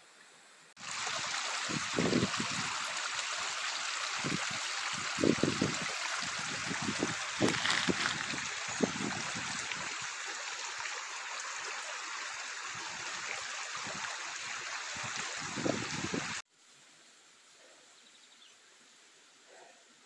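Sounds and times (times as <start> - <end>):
creek water rushing: 0.8 - 16.4.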